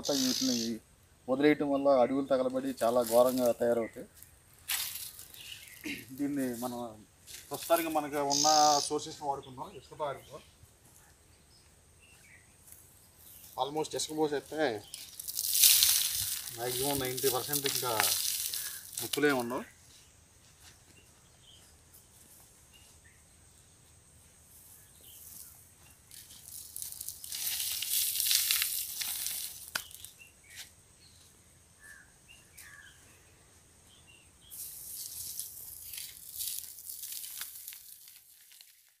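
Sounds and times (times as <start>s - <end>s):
faint bird chirps: 0.0s - 2.2s, 5.2s - 6.8s, 8.1s - 13.7s, 29.8s - 34.8s
soil pattering onto ashes: 2.5s - 8.2s, 12.6s - 19.7s, 25.0s - 30.7s, 34.5s - 39.0s.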